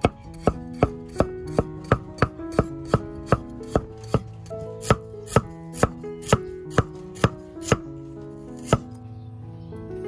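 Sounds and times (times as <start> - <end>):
knife chopping on cutting board: 0.0 - 7.8.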